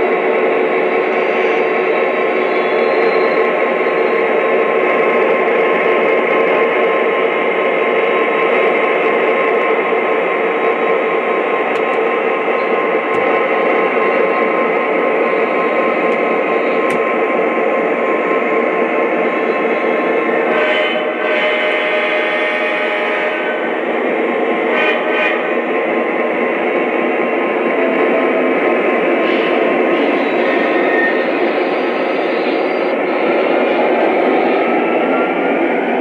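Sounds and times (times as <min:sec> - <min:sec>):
model train engine sound from speaker: 0:00.0 - 0:34.4.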